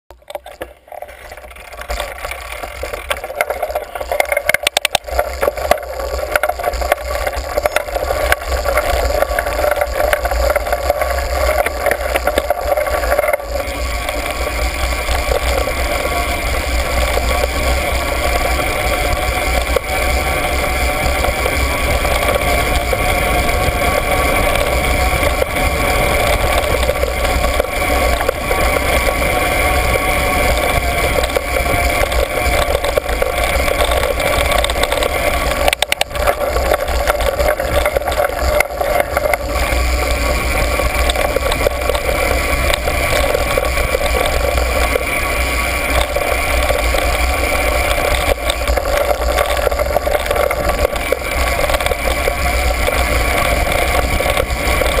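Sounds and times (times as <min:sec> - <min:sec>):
trail rumble: 0:00.1 - 0:55.0.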